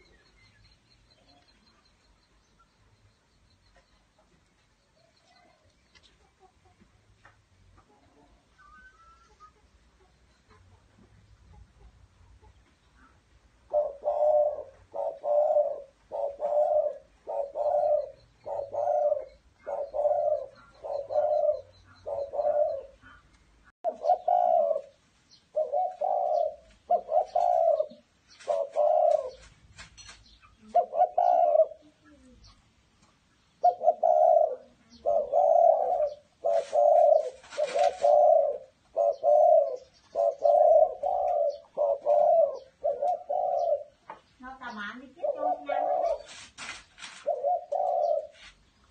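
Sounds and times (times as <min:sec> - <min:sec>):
dove cooing: 0:07.9 - 0:23.3, 0:23.9 - 0:29.6, 0:30.5 - 0:32.6, 0:33.6 - 0:48.6
rustling: 0:26.0 - 0:30.5, 0:35.8 - 0:38.7, 0:45.5 - 0:48.9.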